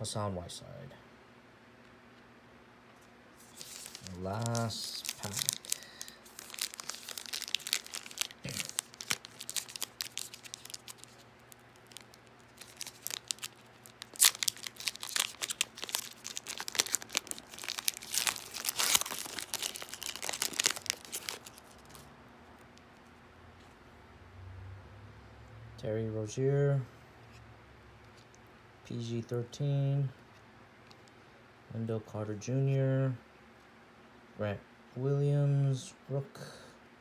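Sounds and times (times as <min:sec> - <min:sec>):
foil wrapper crinkling and tearing: 0:03.4 - 0:22.9.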